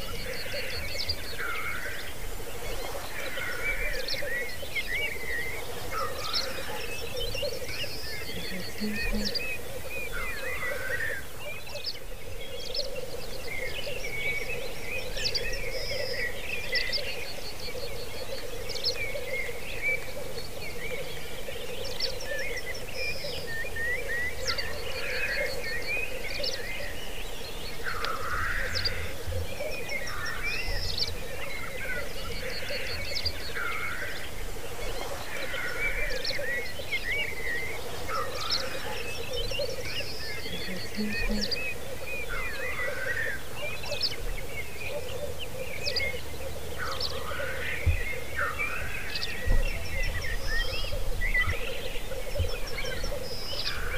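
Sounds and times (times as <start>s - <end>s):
birds chirping: 0.0s - 53.9s
drawn-out hissing calls: 5.2s - 11.4s, 27.8s - 29.1s, 31.8s - 44.1s
grouse bubbling song: 7.3s - 9.7s, 36.2s - 43.0s
rapid ticking bird trills: 38.1s - 43.4s.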